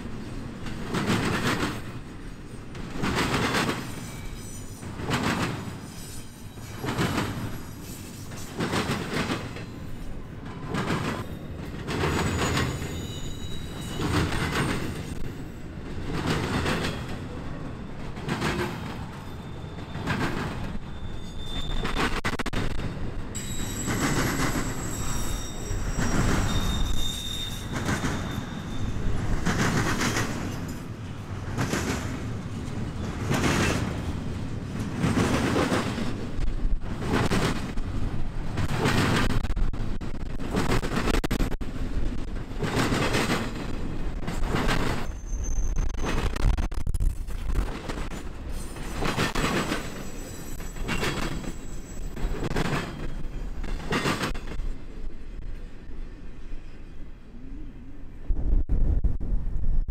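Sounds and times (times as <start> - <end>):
train wheels clicking over rail joints: 0.0 - 17.3, 18.0 - 19.2, 19.8 - 20.9, 21.5 - 54.8
high wheel squeal: 11.2 - 15.2, 19.1 - 22.3, 23.4 - 29.3, 45.0 - 46.5, 49.8 - 53.6.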